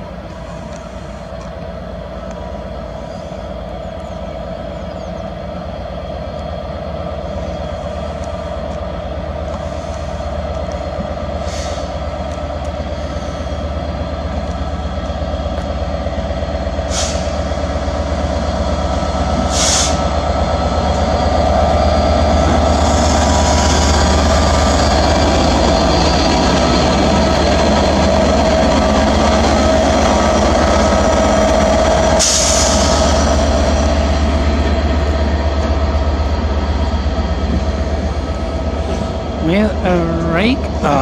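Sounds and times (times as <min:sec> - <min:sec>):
diesel locomotive engine drone: 0:00.0 - 0:41.0
short air hisses: 0:11.4 - 0:11.9, 0:16.9 - 0:17.4, 0:19.5 - 0:20.0.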